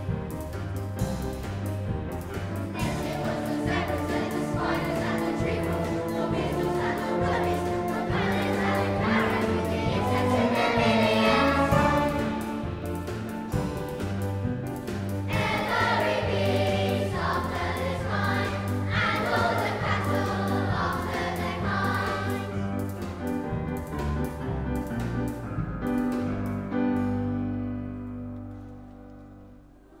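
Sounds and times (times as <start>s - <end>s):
chamber orchestra: 0.0s - 23.2s
children's choir singing: 2.7s - 14.2s, 15.2s - 22.8s.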